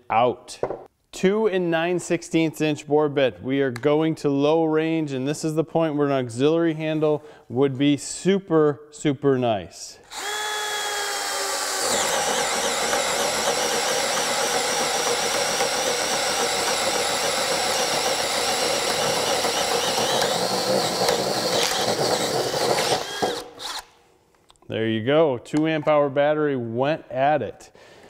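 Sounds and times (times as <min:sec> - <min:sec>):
drill boring into wood: 0:10.1 - 0:23.9.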